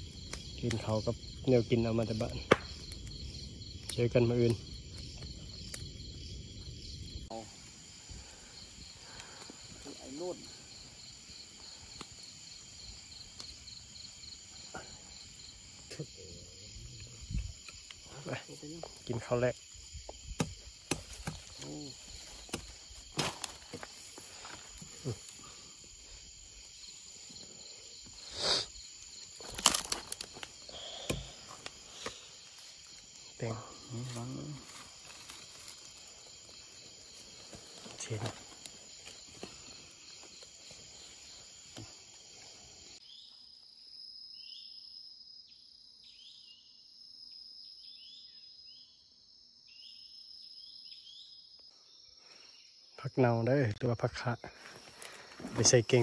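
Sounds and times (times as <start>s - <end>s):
night insects chirring: 0.0s - 56.0s
rustle: 20.9s - 43.3s.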